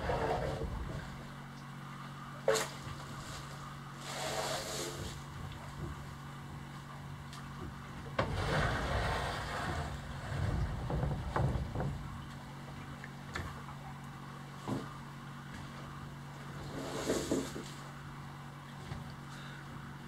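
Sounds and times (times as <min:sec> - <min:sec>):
boards scraping on stack: 0:00.0 - 0:01.2, 0:02.5 - 0:05.2, 0:08.2 - 0:12.0, 0:16.6 - 0:17.8
low hum: 0:00.0 - 0:20.0
dull thuds of boards: 0:09.7 - 0:12.2
wooden boards knocking: 0:10.4 - 0:12.2.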